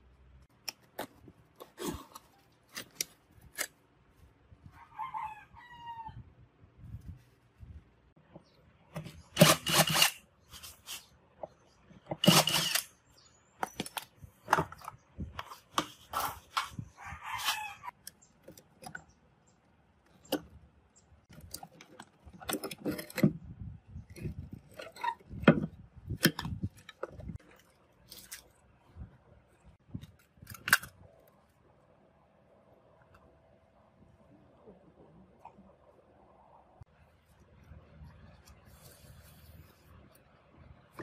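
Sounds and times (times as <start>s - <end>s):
hard plastic scraping: 21.3s - 28.5s.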